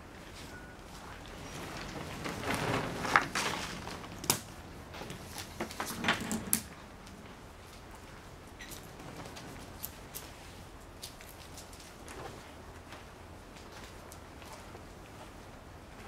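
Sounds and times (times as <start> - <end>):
strap webbing sliding over wood: 1.4 - 4.3.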